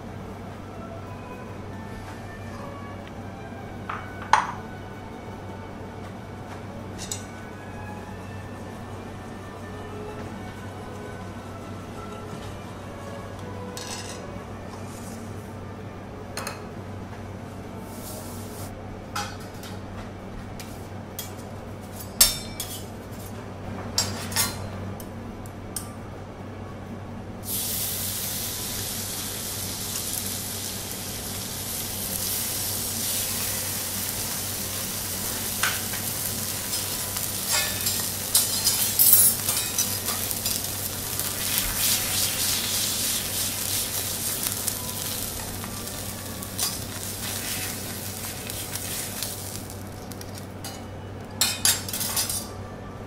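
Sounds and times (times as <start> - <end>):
metal spatulas clinking on griddle: 22.2 - 22.9, 35.6 - 36.0, 36.7 - 40.7, 46.6 - 47.7, 50.6 - 52.5
meat sizzling on hot plate: 27.4 - 50.4
spatula scraping griddle: 35.2 - 45.6, 46.5 - 49.6.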